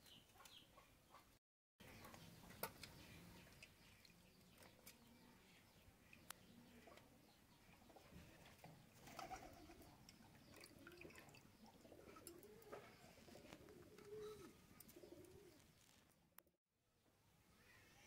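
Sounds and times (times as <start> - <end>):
dove cooing: 10.6 - 15.6.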